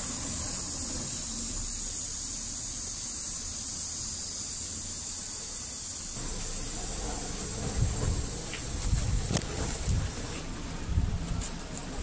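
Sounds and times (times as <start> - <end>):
high-pitched hiss: 0.0 - 12.0
low rumble: 6.2 - 11.4.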